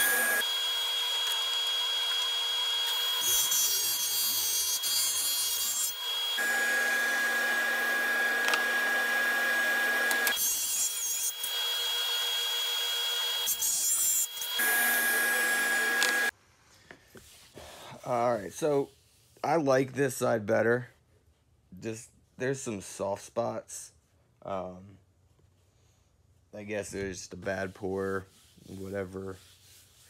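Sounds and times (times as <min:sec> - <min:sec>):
table saw cutting wood: 0:00.0 - 0:16.3.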